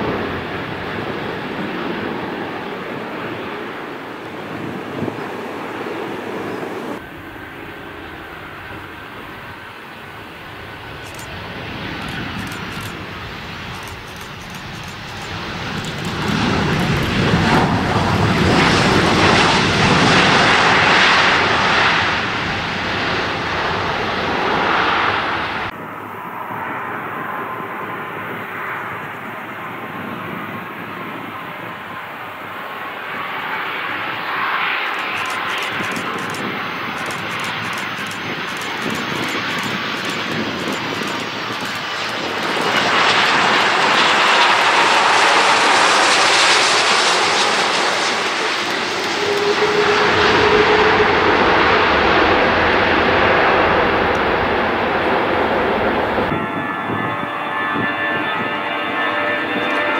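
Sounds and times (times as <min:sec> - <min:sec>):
deep rumble of plane rolling: 0:00.0 - 0:59.9
jet airliner engines: 0:00.0 - 0:59.9.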